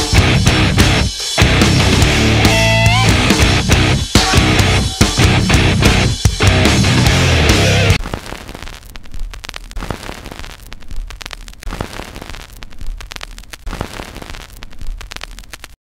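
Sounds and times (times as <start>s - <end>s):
loud rock music: 0.0s - 8.0s
static crackling with pops: 0.0s - 15.8s.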